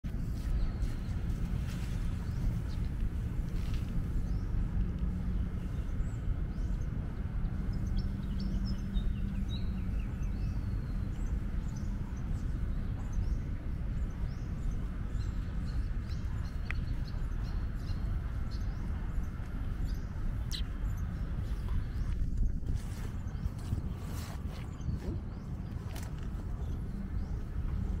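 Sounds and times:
steady low rumble: 0.0 - 28.0
faint hum: 0.1 - 28.0
small birds chirping: 0.1 - 28.0.

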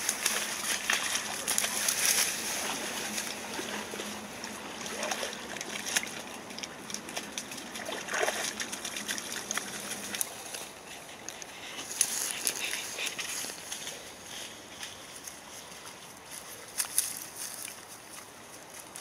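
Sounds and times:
water trickling: 0.0 - 13.6
dogs paddling and splashing: 0.0 - 19.0.

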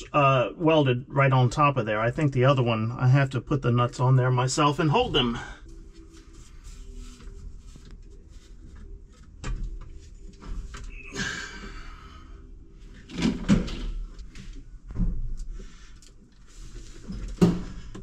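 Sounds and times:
rustling scrape: 5.7 - 9.1.

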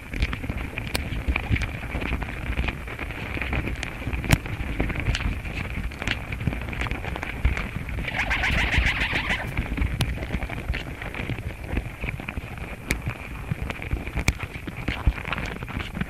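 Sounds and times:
rustling burst: 8.0 - 9.6.

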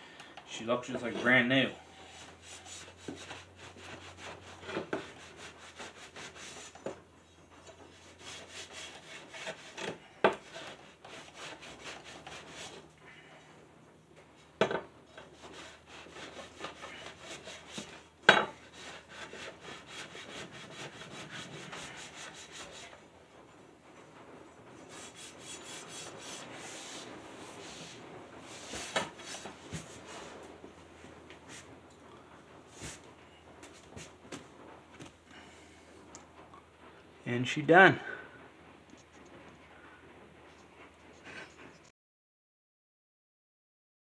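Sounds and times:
rag rubbing on metal blade: 1.0 - 6.9, 7.8 - 12.9, 15.1 - 23.0, 24.9 - 30.4.

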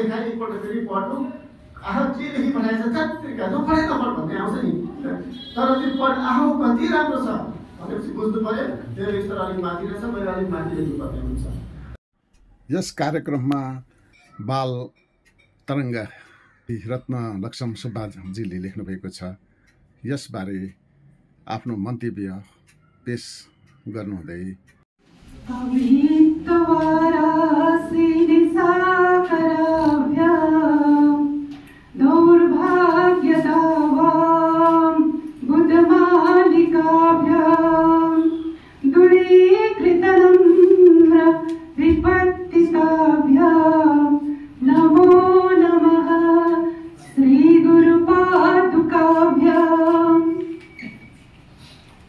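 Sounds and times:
woman singing unaccompanied: 25.4 - 50.6.

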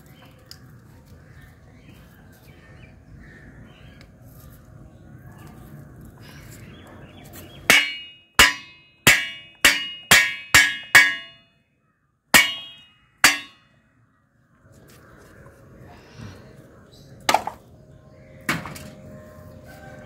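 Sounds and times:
coconut shell knocking on metal bar: 7.7 - 11.4, 12.4 - 13.6.

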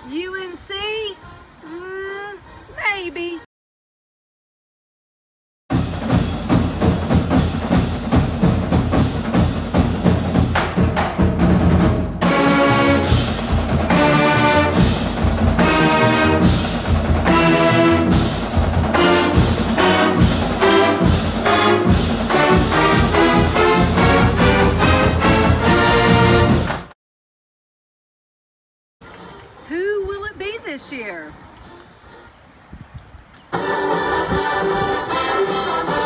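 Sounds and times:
fast percussion hits: 5.7 - 26.9
held brass chords: 11.6 - 26.9.

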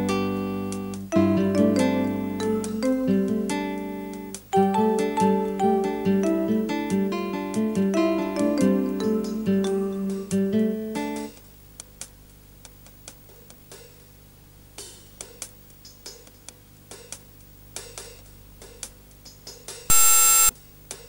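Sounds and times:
plucked guitar-like notes: 0.0 - 11.3
loud buzzing tone: 19.9 - 20.6.

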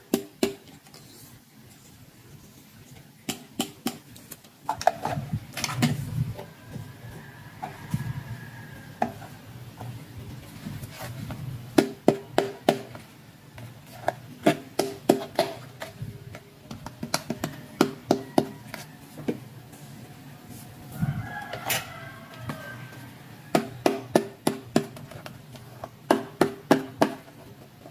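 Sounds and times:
plastic toys clicking and tapping: 13.6 - 18.9.

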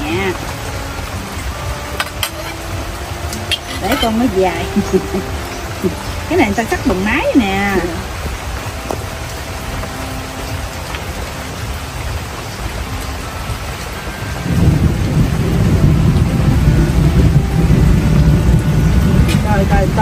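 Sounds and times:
rain falling: 0.0 - 20.0
low rumble: 14.4 - 20.0.

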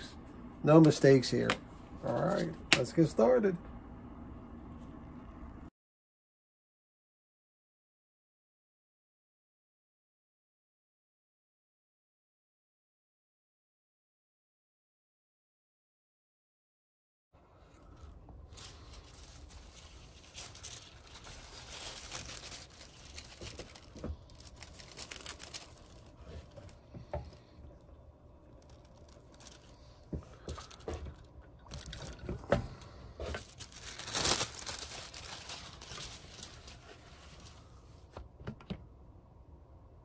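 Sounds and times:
rustling and crinkling: 17.6 - 38.2.

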